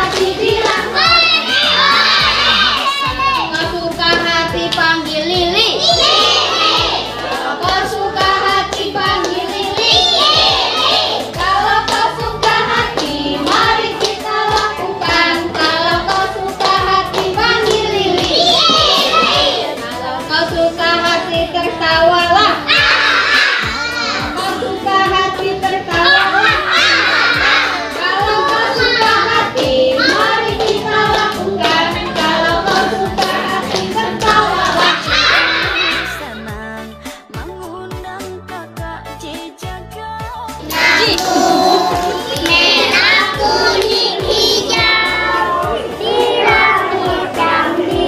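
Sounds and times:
hands clapping: 0:00.0 - 0:01.8, 0:07.6 - 0:19.4, 0:30.0 - 0:35.7, 0:40.7 - 0:45.2
music backing track: 0:00.0 - 0:48.0
upbeat song with singing: 0:00.0 - 0:48.0.

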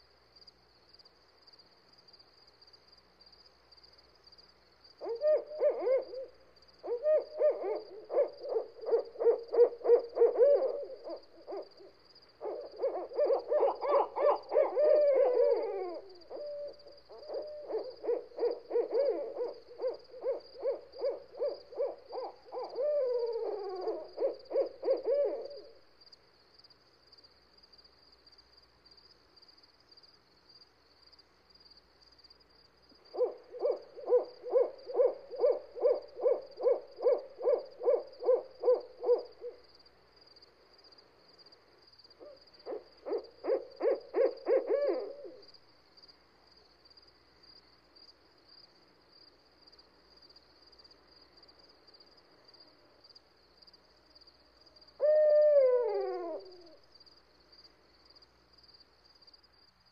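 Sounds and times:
steady high hiss: 0:00.0 - 0:59.9
owl hooting: 0:05.0 - 0:25.8, 0:33.1 - 0:39.6, 0:42.2 - 0:45.6, 0:54.9 - 0:56.9.

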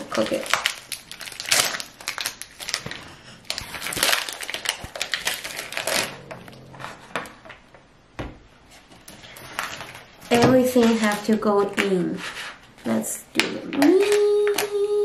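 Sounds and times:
foil pouch crinkling: 0:00.0 - 0:06.3.

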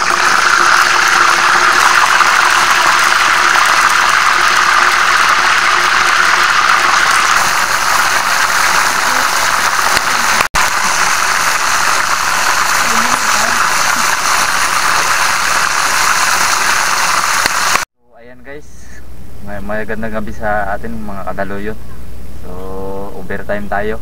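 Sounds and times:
liquid bubbling in a pot: 0:00.0 - 0:17.9.

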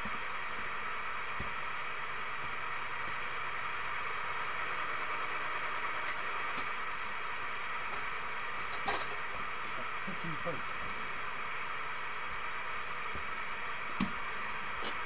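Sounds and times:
radio static hiss: 0:06.2 - 0:15.0.

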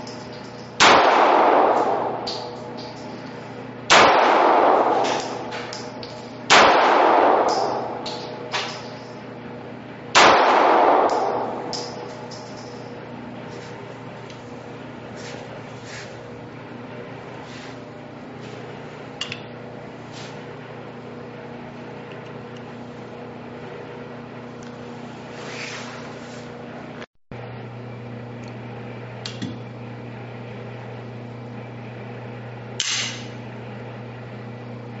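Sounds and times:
ventilation hum: 0:00.0 - 0:35.0.

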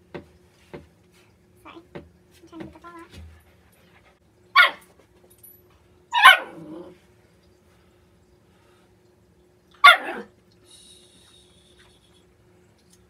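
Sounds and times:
dog barking: 0:04.6 - 0:04.8, 0:06.2 - 0:06.6, 0:09.8 - 0:10.3.

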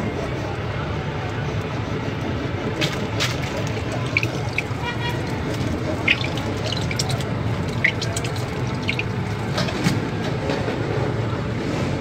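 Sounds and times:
squeeze bottle squirting: 0:02.8 - 0:10.1.

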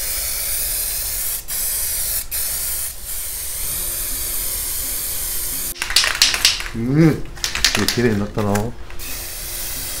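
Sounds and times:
spray-paint can hissing: 0:00.0 - 0:06.7, 0:09.0 - 0:10.0.

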